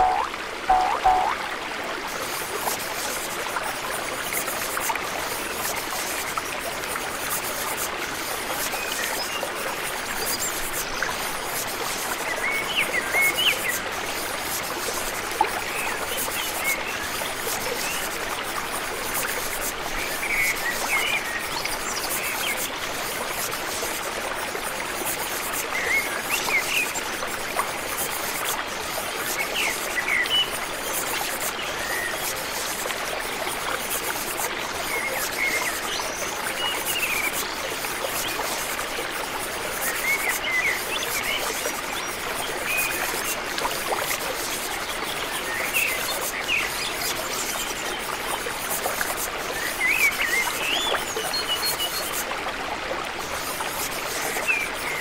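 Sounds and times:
bird chirps: 0.0 - 1.4
rushing water: 0.0 - 55.0.

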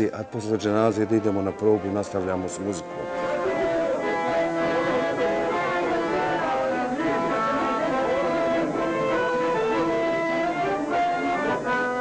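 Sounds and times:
plucked string music: 0.0 - 12.0.

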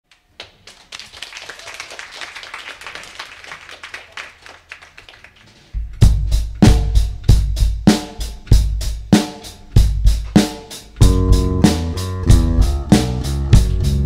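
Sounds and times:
audience applause: 0.2 - 5.7
drum kit playing: 5.7 - 14.0
bass guitar playing: 5.8 - 14.0.

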